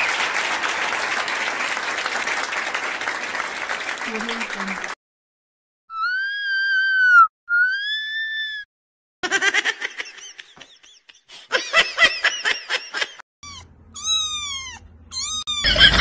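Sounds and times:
drawn-out high cry: 5.9s - 8.7s, 13.4s - 16.0s
person laughing: 9.2s - 13.2s, 15.6s - 16.0s
high squeaky calls: 13.4s - 16.0s.

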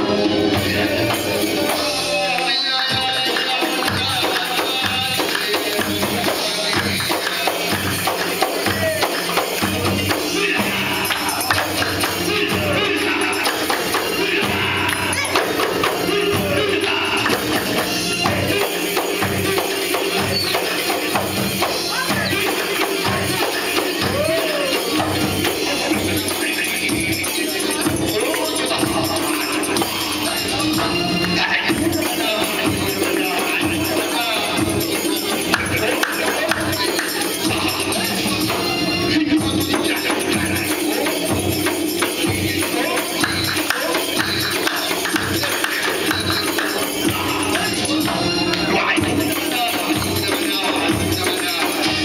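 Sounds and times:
hand drum beats: 0.0s - 52.0s
tambourine jingles: 0.5s - 52.0s.

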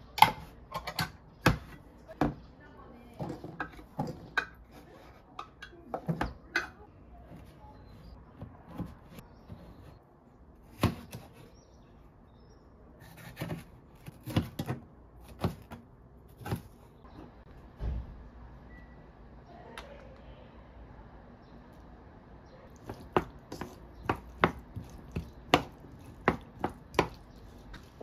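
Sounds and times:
knife cutting on plastic board: 13.0s - 16.9s.

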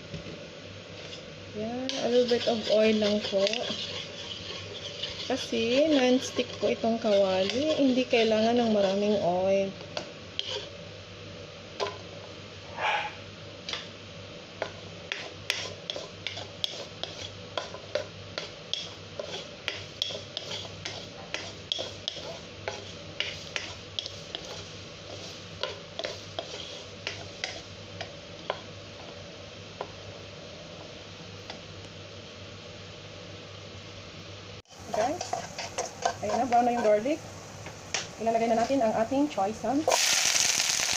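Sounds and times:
garlic sizzling in oil: 0.9s - 10.9s, 14.5s - 30.1s, 34.6s - 40.9s
spatula tapping and scraping wok: 1.8s - 9.2s, 9.8s - 10.7s, 14.6s - 29.2s, 34.8s - 38.8s
cloves clattering into pan: 39.9s - 40.9s.

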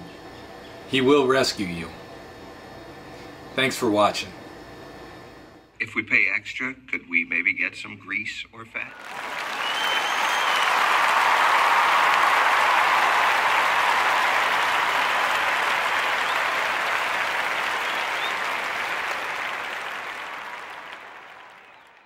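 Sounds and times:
audience applause: 8.9s - 22.0s.

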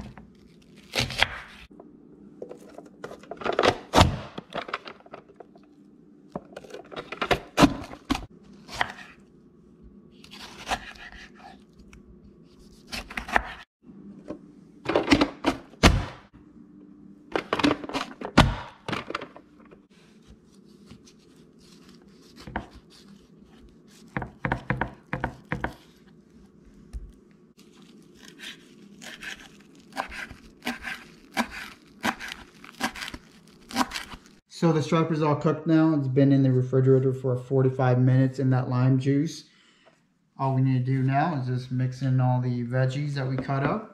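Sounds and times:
knife chopping on wooden board: 0.9s - 1.6s, 7.6s - 9.2s, 12.9s - 13.6s, 22.2s - 23.0s, 24.0s - 25.9s, 29.0s - 34.2s
vegetable chopper slamming shut: 14.9s - 16.2s.

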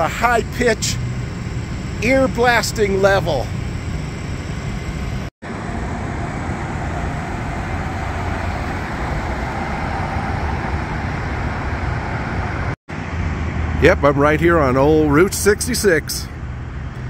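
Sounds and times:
generators humming: 0.0s - 17.0s
road traffic: 0.0s - 17.0s.

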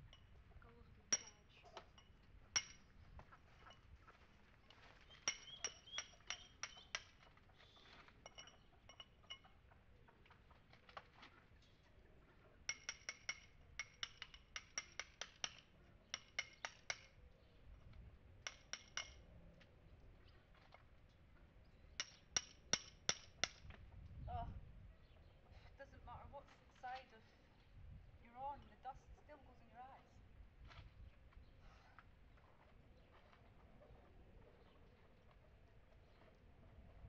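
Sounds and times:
hammer striking steel chisel: 1.1s - 1.4s, 2.6s - 2.8s, 5.2s - 7.2s, 12.7s - 17.2s, 18.4s - 19.2s, 22.0s - 23.7s.

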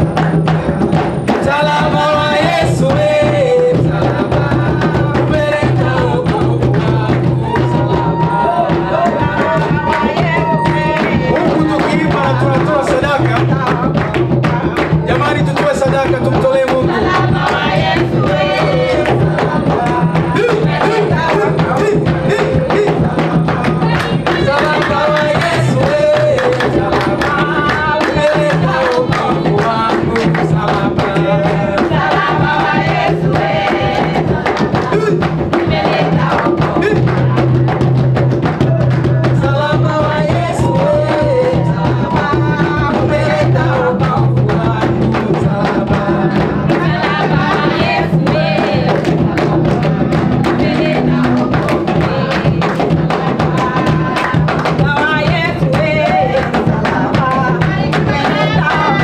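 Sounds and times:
gospel singing: 0.0s - 59.0s
steady drum beat: 0.0s - 59.0s
sustained bass notes: 49.5s - 53.0s.

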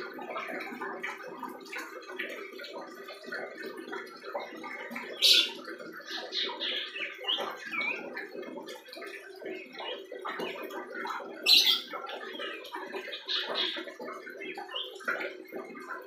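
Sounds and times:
bird chirping and warbling: 4.5s - 15.9s.

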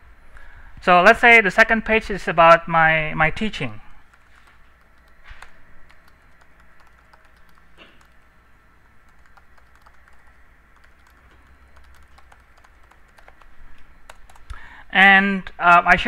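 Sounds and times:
keyboard typing: 4.0s - 8.4s, 9.0s - 14.6s.

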